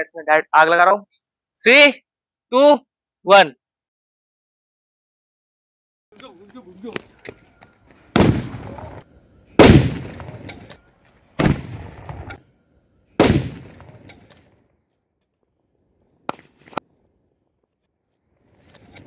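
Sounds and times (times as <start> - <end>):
firecracker bangs with ringing echo: 9.6 - 10.7, 13.2 - 14.1.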